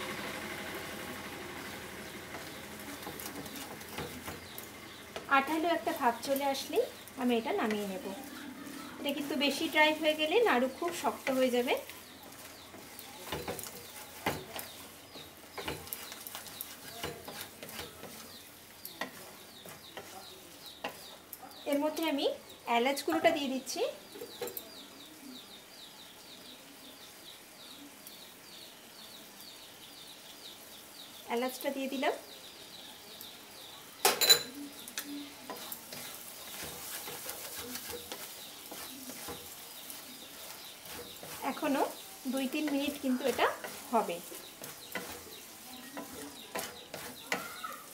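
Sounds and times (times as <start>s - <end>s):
soft sizzling: 0.0s - 25.4s, 30.1s - 47.9s
wooden spatula scraping pan: 1.6s - 21.2s, 35.4s - 47.9s
wooden spatula knocking on pan: 2.3s - 5.3s, 12.8s - 18.2s, 40.8s - 47.6s.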